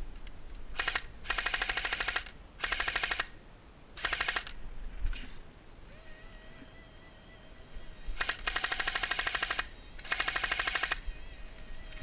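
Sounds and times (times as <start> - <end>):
airsoft machine gun bursts: 0.8 - 3.3, 4.0 - 4.5, 8.2 - 11.0.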